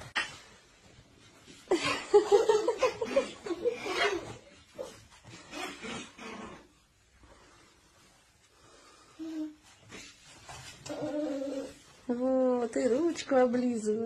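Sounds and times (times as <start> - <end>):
toddler giggling: 2.1 - 4.4.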